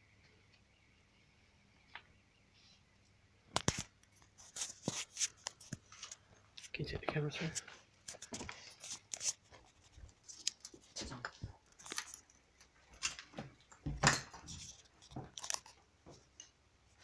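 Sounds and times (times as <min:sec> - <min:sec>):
camera handling noise: 0:03.6 - 0:03.9.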